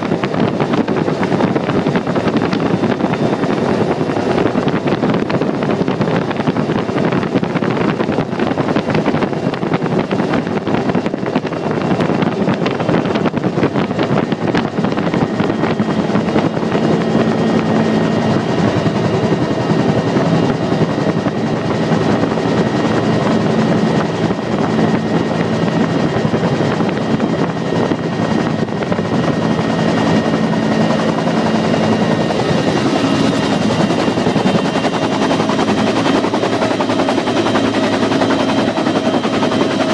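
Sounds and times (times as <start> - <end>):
helicopter rotor din: 0.0 - 39.9
turbine whine: 0.0 - 39.9
low hum: 11.3 - 39.9.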